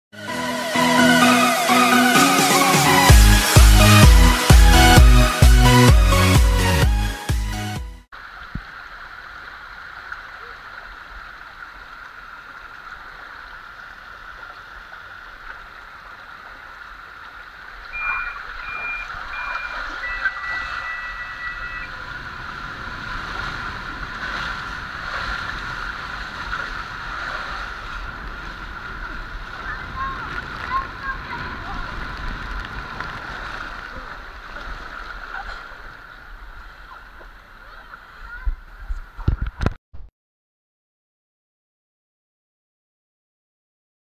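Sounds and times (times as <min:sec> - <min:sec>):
water rushing down slide: 0:08.2 - 0:39.3
long steady tone: 0:17.8 - 0:25.1
short beeps: 0:17.9 - 0:22.0.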